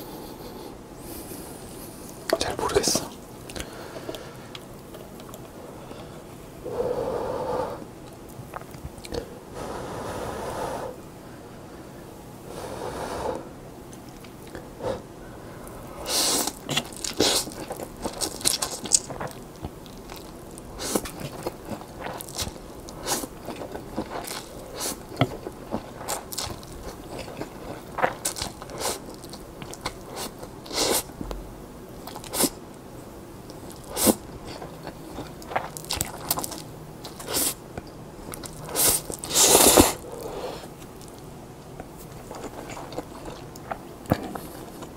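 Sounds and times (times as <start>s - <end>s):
chewing and mouth smacks: 8.0s - 9.2s, 16.4s - 31.2s, 32.0s - 32.6s, 33.4s - 40.0s, 40.8s - 44.9s
noodles slurping: 38.3s - 40.7s.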